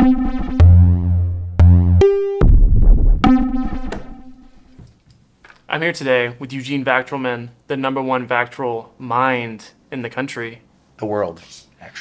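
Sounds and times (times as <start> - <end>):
heavy bass hits: 0.0 - 4.8
synthesizer music: 0.0 - 4.8.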